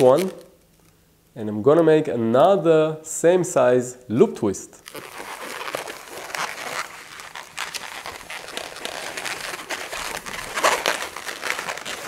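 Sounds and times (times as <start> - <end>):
balloon squeaking and creaking: 4.8 - 12.0.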